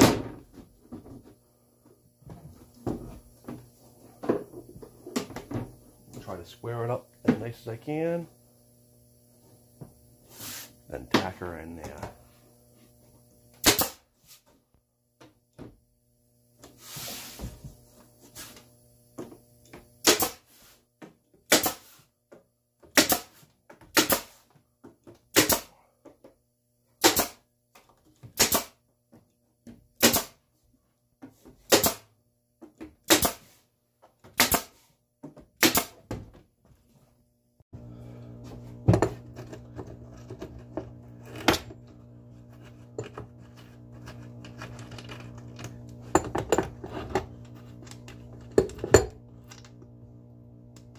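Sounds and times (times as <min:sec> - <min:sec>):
steady low hum: 0:00.2 - 0:13.9, 0:37.8 - 0:50.9
nail gun firing into plywood: 0:13.6 - 0:14.1, 0:20.0 - 0:20.5, 0:21.5 - 0:21.9, 0:22.9 - 0:24.4, 0:25.3 - 0:25.7, 0:27.0 - 0:27.5, 0:28.3 - 0:28.8, 0:30.0 - 0:30.4, 0:31.6 - 0:32.1, 0:33.0 - 0:33.5, 0:34.3 - 0:34.8, 0:35.6 - 0:36.1.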